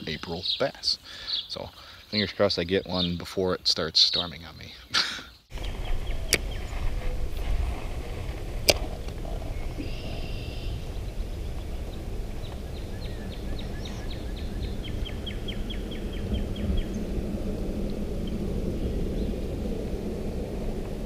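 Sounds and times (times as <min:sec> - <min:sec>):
small birds chirping: 0:00.0 - 0:07.5, 0:08.7 - 0:17.1
low steady rumble: 0:05.5 - 0:21.0.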